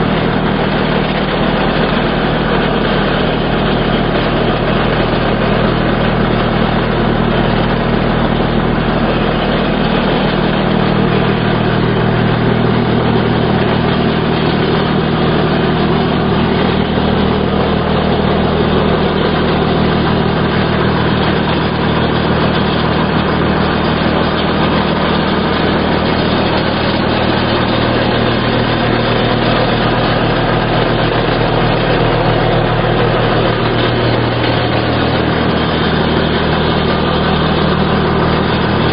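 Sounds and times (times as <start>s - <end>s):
hedge trimmer engine running: 0.0s - 38.9s.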